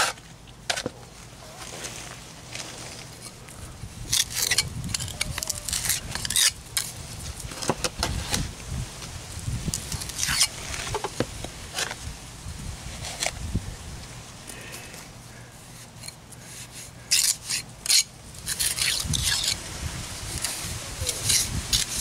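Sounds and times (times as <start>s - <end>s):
trowel scraping cement mix: 4.1s - 6.9s, 15.7s - 19.6s, 20.3s - 22.0s.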